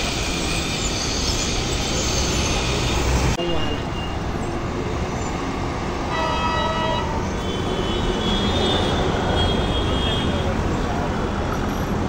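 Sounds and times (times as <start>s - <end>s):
highway traffic: 0.0s - 12.0s
vehicle horn: 6.1s - 10.5s.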